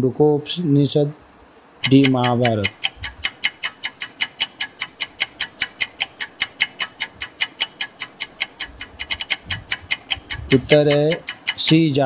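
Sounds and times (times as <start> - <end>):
countdown timer ticking: 1.8 - 12.0.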